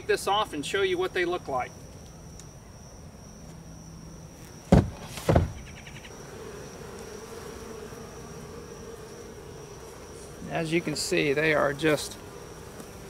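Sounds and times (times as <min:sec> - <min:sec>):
bees buzzing: 0:00.0 - 0:13.0
knocks on wooden box: 0:04.7 - 0:05.6.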